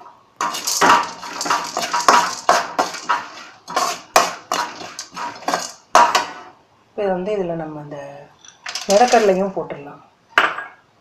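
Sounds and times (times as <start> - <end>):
metal ladle scraping metal pan: 0.4 - 6.5, 8.6 - 9.4.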